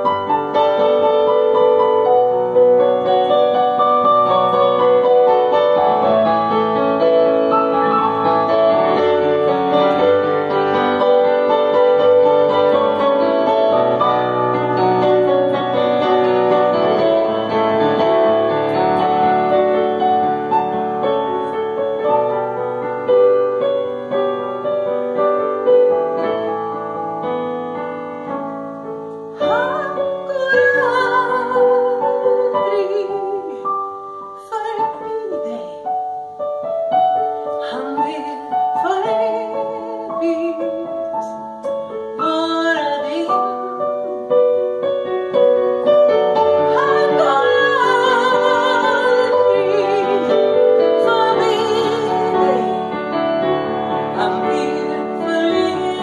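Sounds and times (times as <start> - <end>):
piano playing a song: 0.0 - 56.0
woman singing: 29.4 - 36.0, 37.5 - 41.5, 42.2 - 43.7, 46.4 - 53.0, 53.9 - 56.0.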